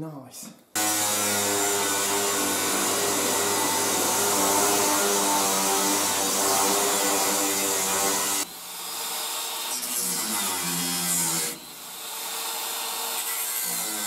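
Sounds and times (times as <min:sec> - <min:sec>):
angle grinder cutting steel: 0:00.8 - 0:14.0.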